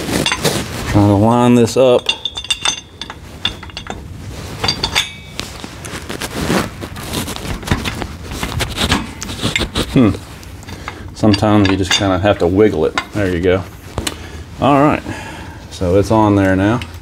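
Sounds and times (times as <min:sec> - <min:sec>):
metal clinking and scraping: 0:00.0 - 0:15.0
sharp ringing metal clinks: 0:01.7 - 0:04.0, 0:04.6 - 0:05.4.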